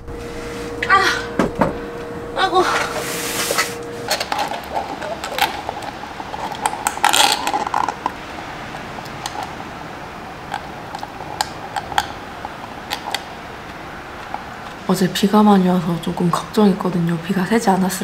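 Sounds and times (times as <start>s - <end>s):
steady room hum: 0.0s - 18.0s
cup and straw clicks: 10.5s - 14.8s.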